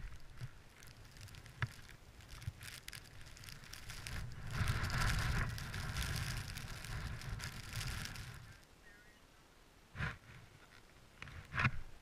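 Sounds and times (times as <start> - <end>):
rope rustling and scraping: 0.0 - 8.7, 10.0 - 11.9.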